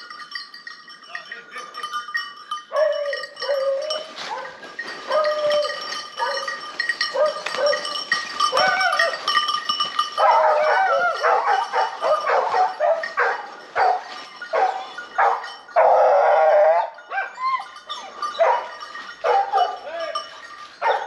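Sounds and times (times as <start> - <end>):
hunting dogs baying: 2.5 - 21.0
dog drawn-out cry: 10.2 - 18.7.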